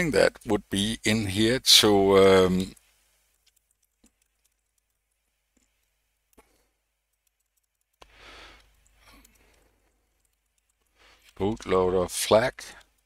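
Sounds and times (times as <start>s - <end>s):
keyboard typing clicks: 2.6s - 11.7s
short breath: 8.0s - 9.8s.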